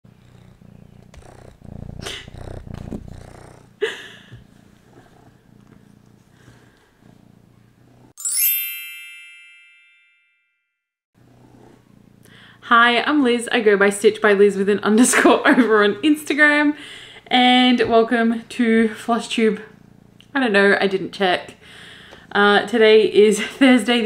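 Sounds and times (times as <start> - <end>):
kitten purring: 0.1 - 8.2, 11.2 - 12.3, 18.9 - 21.1
bright chime ringing: 8.2 - 10.6.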